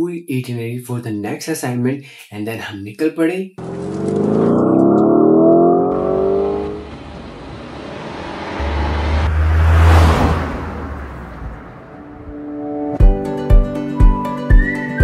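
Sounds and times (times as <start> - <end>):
car speeding past with whoosh: 3.6 - 12.4
car engine accelerating: 3.6 - 12.6.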